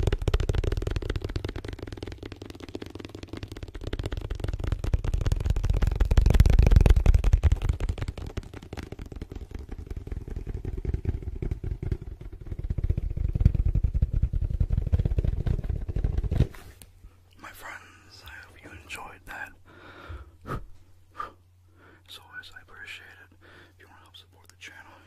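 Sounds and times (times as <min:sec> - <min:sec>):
fast dull hand tapping: 0:00.0 - 0:16.5.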